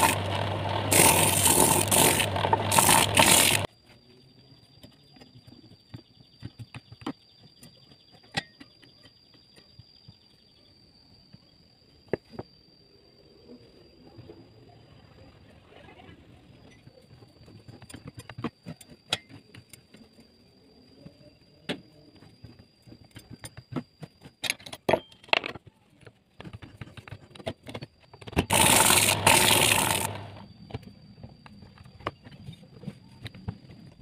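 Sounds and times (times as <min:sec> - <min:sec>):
loud grinding burst: 0:00.0 - 0:03.7, 0:28.5 - 0:30.5
saw sharpening machine whine: 0:00.0 - 0:03.7, 0:28.5 - 0:30.5.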